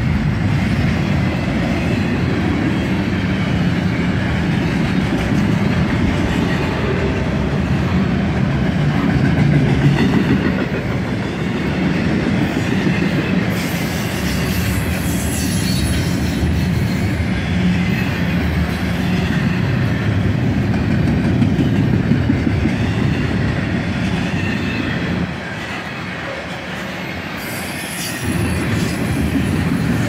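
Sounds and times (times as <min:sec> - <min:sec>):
train wheels rumbling on rail: 0:00.0 - 0:30.0
high wheel squeals: 0:27.4 - 0:30.0.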